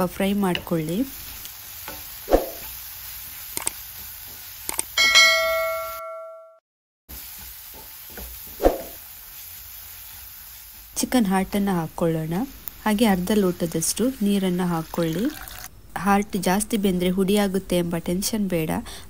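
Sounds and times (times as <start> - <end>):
frying sizzle: 0.0 - 5.2, 7.1 - 15.7
bell-like notification chime: 5.0 - 6.6.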